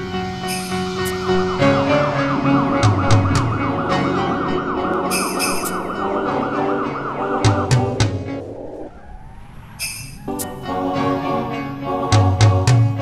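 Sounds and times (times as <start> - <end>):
background music: 0.0 - 9.0, 9.8 - 13.0
fast warbling siren: 0.5 - 10.6.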